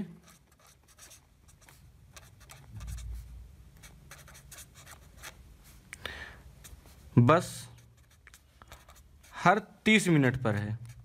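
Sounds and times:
pen scratching on paper: 0.2 - 5.4, 7.7 - 9.4, 10.3 - 11.0.

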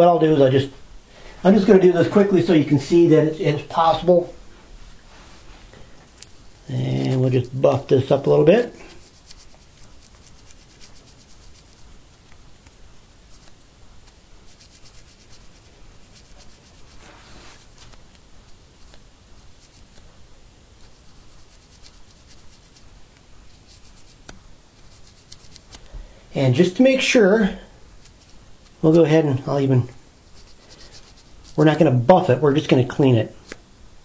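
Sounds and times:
cotton swab rubbing on steel: 6.1 - 20.1, 20.7 - 25.9, 28.0 - 32.7.

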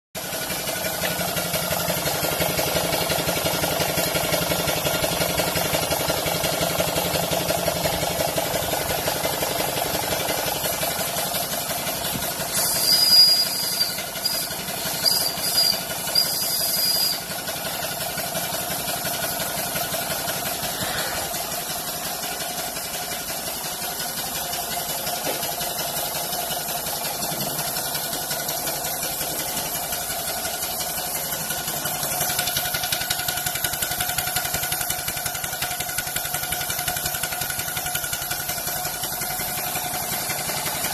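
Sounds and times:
steam engine ticking over: 0.2 - 40.9
steam whistle blasts: 12.5 - 17.3.

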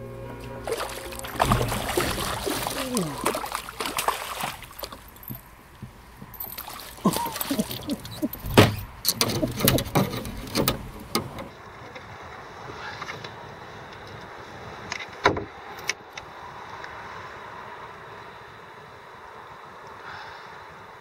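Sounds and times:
water splashing: 0.4 - 11.3
fish thrashing against boat: 0.6 - 11.5
knocks and thumps on boat: 0.7 - 11.5.

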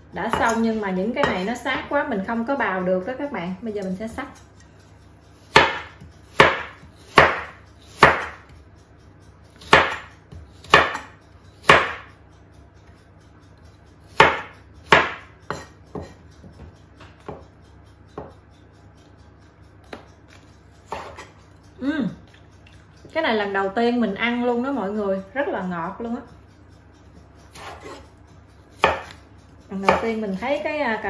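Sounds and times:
knife chopping on wooden board: 0.3 - 0.6, 5.4 - 8.5, 9.6 - 12.1, 14.1 - 17.4, 20.8 - 21.3, 27.5 - 28.1, 28.7 - 29.2, 29.8 - 30.4.

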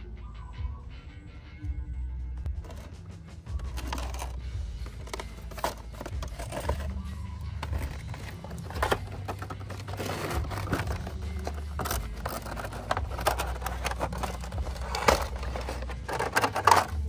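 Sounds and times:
packaging rustling and crinkling: 7.6 - 16.9.

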